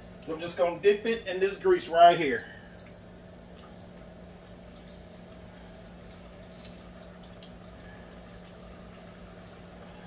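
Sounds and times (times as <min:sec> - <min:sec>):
hot oil sizzling and bubbling: 0:02.7 - 0:10.0.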